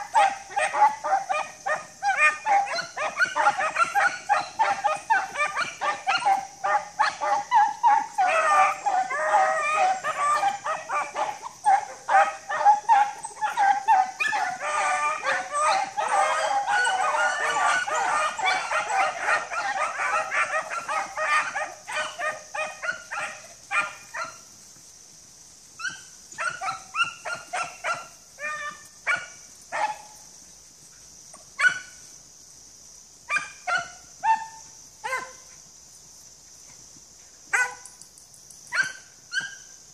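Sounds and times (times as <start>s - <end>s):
hounds baying and barking: 0.0s - 24.5s, 25.8s - 30.2s, 33.3s - 35.5s, 37.5s - 38.0s.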